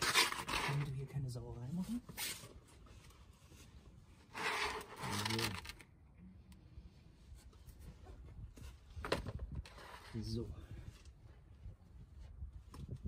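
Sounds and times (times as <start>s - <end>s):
mat sliding over paving stones: 1.9s - 5.6s.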